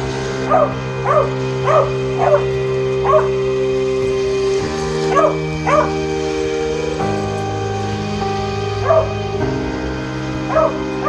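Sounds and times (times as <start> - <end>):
background music with held chords: 0.0 - 11.0
dog barking: 0.5 - 3.4, 5.1 - 5.9, 8.8 - 9.2, 10.5 - 10.8.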